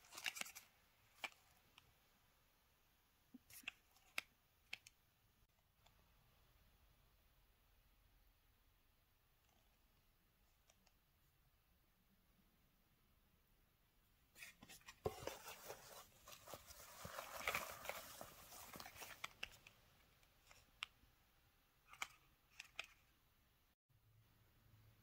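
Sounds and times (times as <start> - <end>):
paper rustling and crinkling: 0.0 - 1.5, 14.4 - 19.7.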